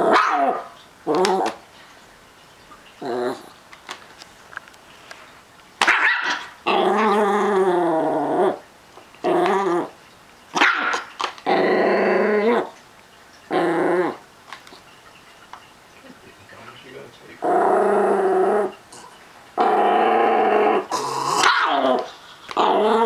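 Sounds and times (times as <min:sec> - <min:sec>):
small dog barking: 0:00.0 - 0:00.8, 0:05.8 - 0:06.6, 0:10.6 - 0:11.1, 0:21.4 - 0:22.1
small dog growling: 0:00.0 - 0:01.6, 0:03.0 - 0:03.6, 0:06.3 - 0:08.6, 0:09.2 - 0:10.0, 0:10.6 - 0:12.8, 0:13.5 - 0:14.2, 0:17.4 - 0:23.0.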